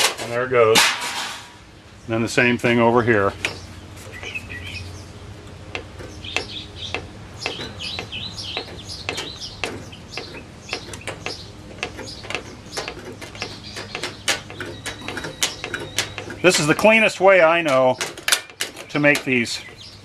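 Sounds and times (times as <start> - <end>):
sheet metal bending and tearing: 7.4 - 19.8.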